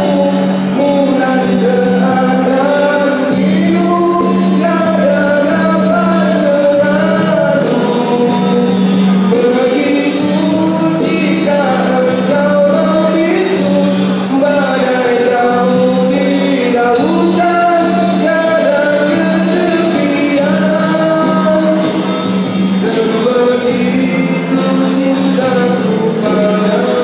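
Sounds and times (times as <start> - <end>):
acoustic guitars: 0.0 - 27.0
electric guitar: 0.0 - 27.0
man singing into a microphone: 0.0 - 27.0.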